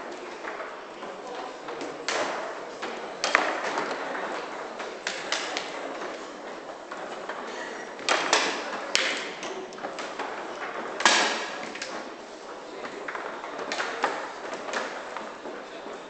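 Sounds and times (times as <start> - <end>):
foosball rods clacking: 0.0 - 16.0
foosball ball knocks: 1.5 - 6.2, 8.0 - 12.1.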